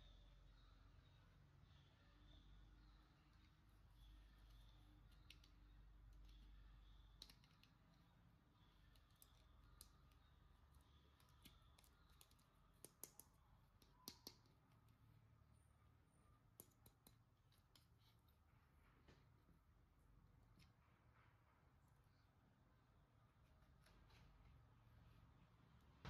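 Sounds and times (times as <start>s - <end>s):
small clicks and taps: 4.4s - 15.0s, 16.5s - 18.3s.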